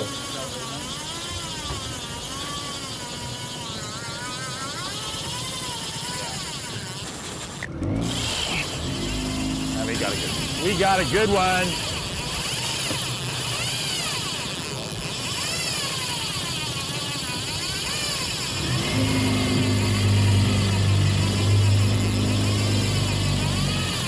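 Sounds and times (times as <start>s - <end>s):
outboard motor running: 0.0s - 24.0s
wavering whine: 7.6s - 14.5s, 18.2s - 24.0s
low engine hum: 7.7s - 14.4s, 18.4s - 24.0s.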